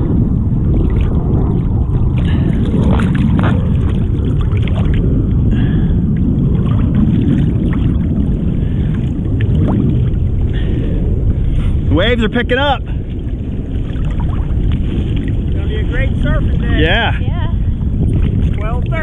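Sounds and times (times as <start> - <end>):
ocean water sloshing: 0.0 - 11.9, 12.8 - 19.0
water splashes: 0.0 - 19.0.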